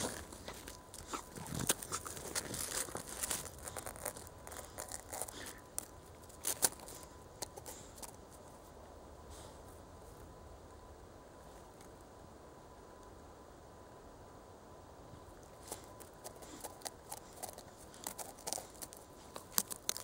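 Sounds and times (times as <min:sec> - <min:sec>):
snow crunching and crackling: 0:00.0 - 0:07.1.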